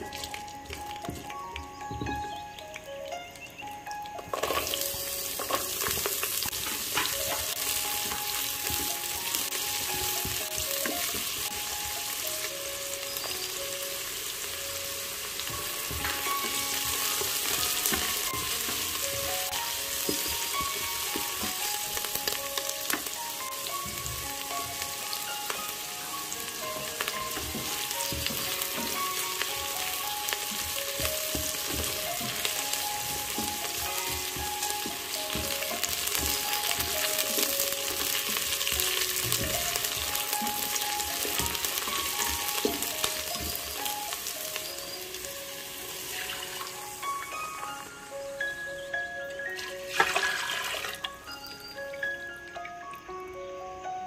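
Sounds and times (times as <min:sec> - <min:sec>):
shallots sizzling in hot oil: 0:00.0 - 0:52.7
spatula scraping and tapping pot: 0:15.5 - 0:21.7.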